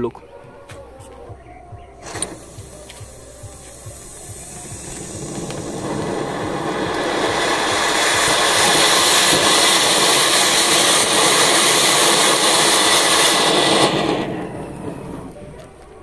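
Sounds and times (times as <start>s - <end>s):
fountain firework hissing: 2.0s - 16.0s.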